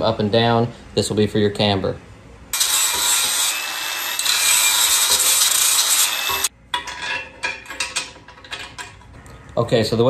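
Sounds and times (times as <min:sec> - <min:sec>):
angle grinder grinding steel: 0:02.6 - 0:06.5.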